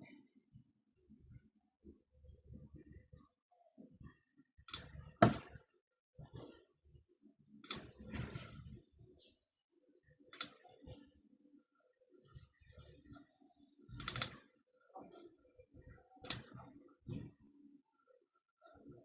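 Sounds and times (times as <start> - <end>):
soft knocks: 5.2 - 5.5.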